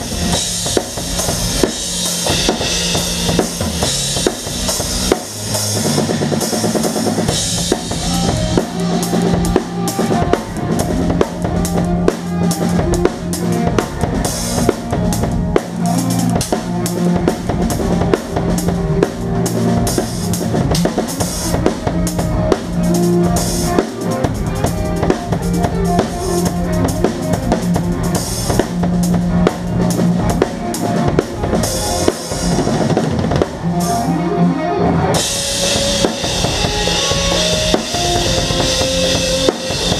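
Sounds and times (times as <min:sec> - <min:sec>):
drum kit playing: 0:00.0 - 0:34.2, 0:35.0 - 0:39.9
bass guitar notes: 0:00.0 - 0:39.9.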